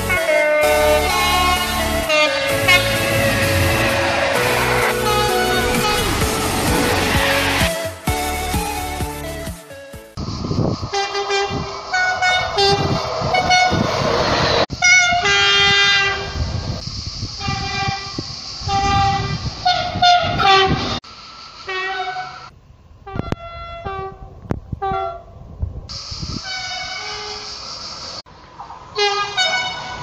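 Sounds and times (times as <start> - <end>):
train horn blasts: 0.0 - 8.4, 10.9 - 14.0, 14.7 - 16.4, 17.4 - 21.0, 21.7 - 25.3, 26.4 - 27.5, 29.0 - 30.0
passing train rumble: 0.0 - 30.0.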